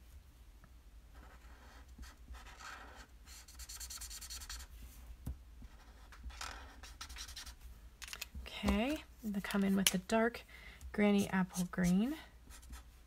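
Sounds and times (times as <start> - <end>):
marker scratching on card: 1.2 - 4.7, 5.7 - 7.6, 11.1 - 12.9.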